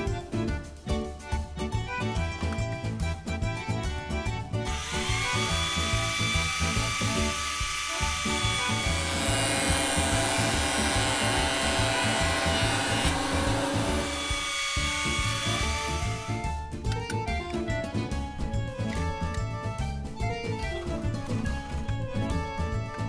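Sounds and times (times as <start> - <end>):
background music with beat: 0.0 - 23.0
electric planer whine: 4.7 - 16.4.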